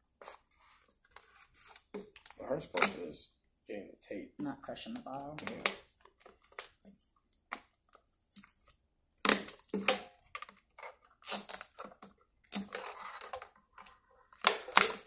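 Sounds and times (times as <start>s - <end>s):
plastic bottle crackling: 4.9s - 13.6s, 14.3s - 15.0s.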